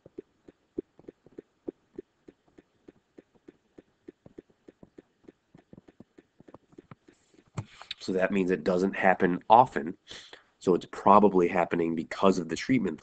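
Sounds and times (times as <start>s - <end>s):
stylus tapping tablet screen: 0.0s - 7.8s.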